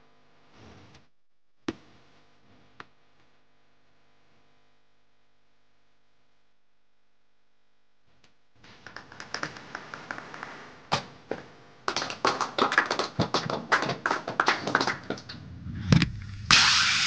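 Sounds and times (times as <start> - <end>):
sharp taps and clicks: 8.8 - 10.5.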